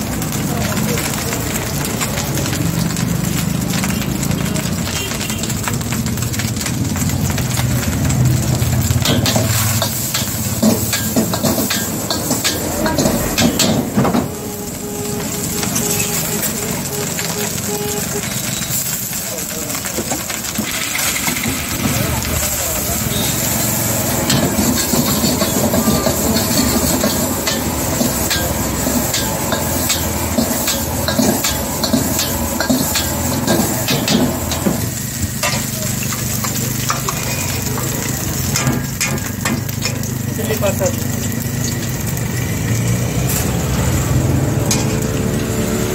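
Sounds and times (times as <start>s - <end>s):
rice sizzling: 0.0s - 45.9s
metal ladle scraping a wok: 9.0s - 19.1s, 23.4s - 39.5s.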